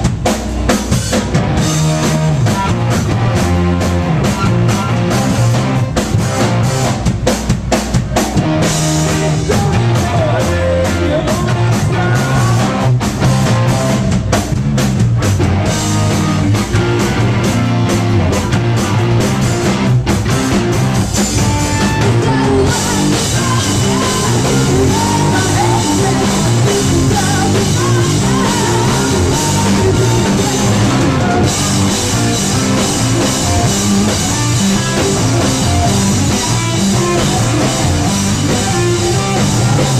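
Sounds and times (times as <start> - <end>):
live rock band playing: 0.0 - 39.9
person singing: 8.8 - 12.9, 21.7 - 31.9.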